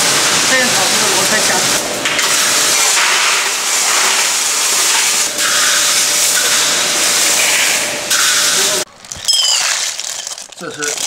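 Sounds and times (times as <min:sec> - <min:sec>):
snails rattling in metal pot: 0:08.9 - 0:11.0.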